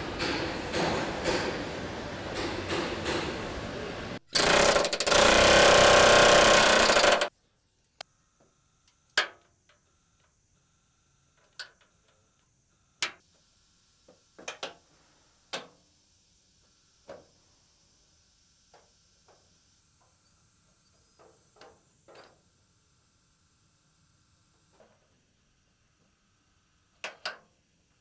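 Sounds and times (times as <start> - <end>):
metallic clicks and clanks: 4.4 - 7.3.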